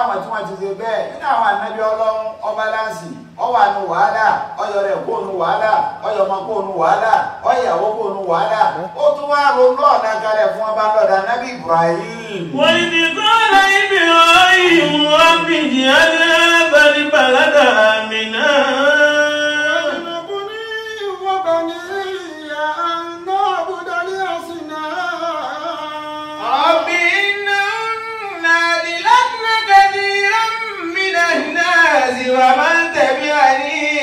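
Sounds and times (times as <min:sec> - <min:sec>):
person chanting melodically: 0:11.5 - 0:34.0.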